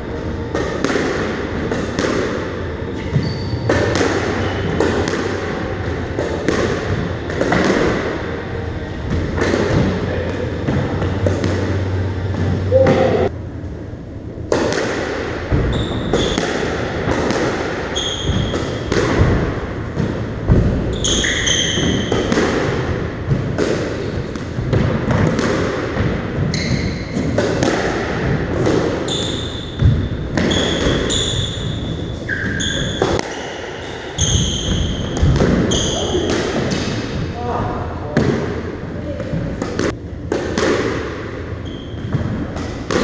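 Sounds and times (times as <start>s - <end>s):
squash ball knocks: 14.5s - 20.8s, 39.6s - 41.2s, 42.0s - 43.0s.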